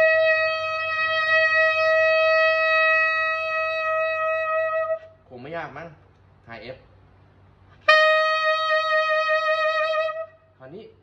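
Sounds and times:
tenor saxophone long note: 7.8s - 10.3s.

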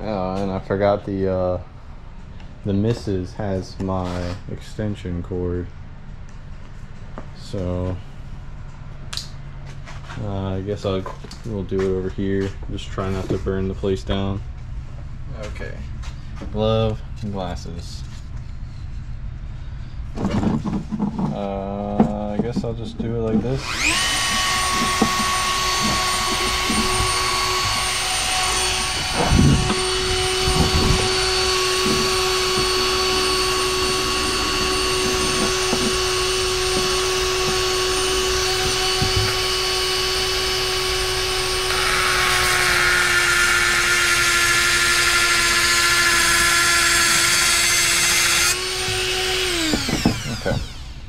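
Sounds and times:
rotary tool whining: 23.2s - 51.0s
cut-off wheel grinding steel: 23.4s - 51.0s
knocks: 49.6s - 50.7s.

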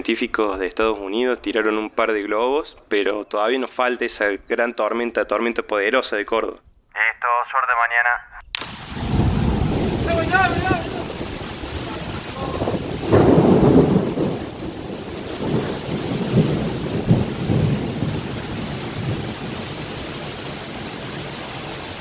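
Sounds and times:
steady rain: 8.6s - 22.0s
rolling thunder: 8.8s - 22.0s.

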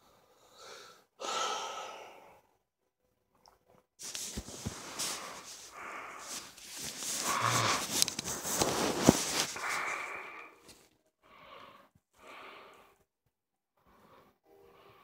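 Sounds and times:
person breathing faintly: 4.0s - 13.0s.

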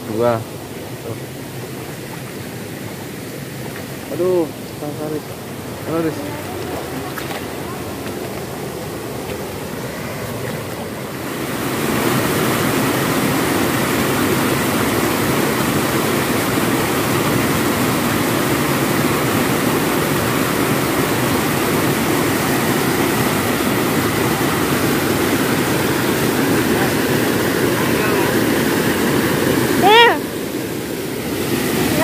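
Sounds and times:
water rushing over cascade: 0.0s - 32.0s.

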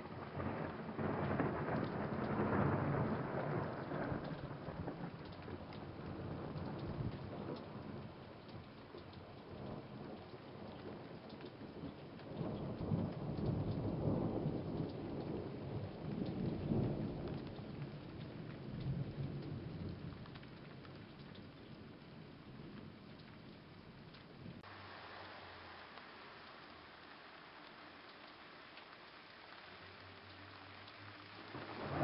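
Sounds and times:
raindrops ticking: 0.0s - 32.0s
steady rain: 0.0s - 32.0s
thunder rolling: 0.1s - 7.8s, 31.3s - 32.0s.

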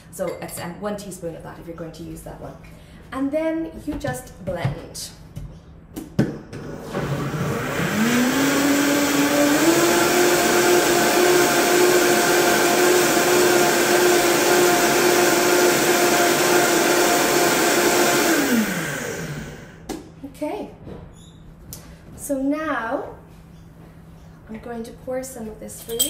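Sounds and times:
blender motor whine: 6.6s - 19.9s.

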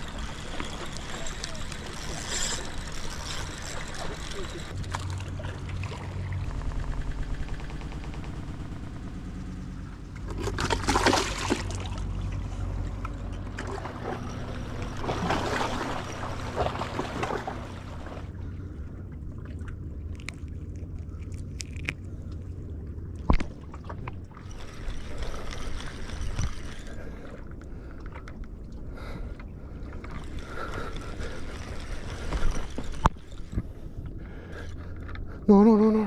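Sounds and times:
fishing reel being cranked: 0.0s - 5.4s, 24.4s - 27.4s, 30.0s - 33.6s
sea water sloshing: 0.0s - 7.4s, 10.1s - 35.1s.

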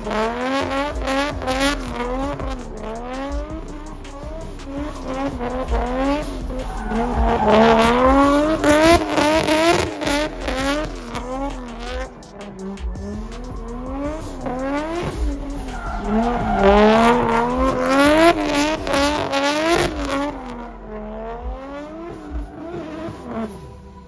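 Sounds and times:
car engine revving: 0.0s - 24.0s
tyres squealing: 5.0s - 21.0s.

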